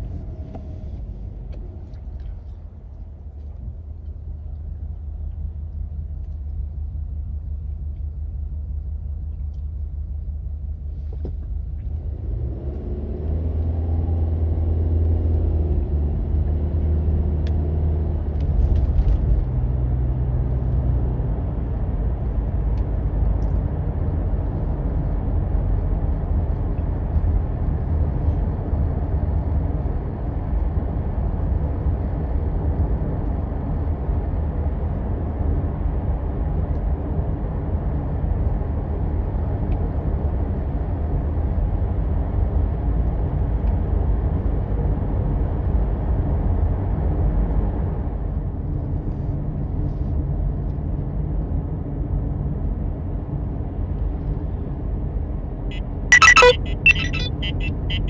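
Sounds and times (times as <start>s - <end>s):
car engine accelerating: 11.6s - 28.0s
tyre road noise: 52.8s - 58.0s.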